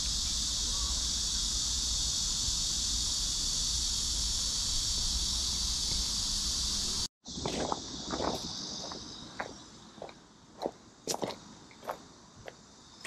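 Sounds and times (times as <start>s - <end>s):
high insect chorus: 0.0s - 13.0s
footsteps on gravel: 7.3s - 12.6s.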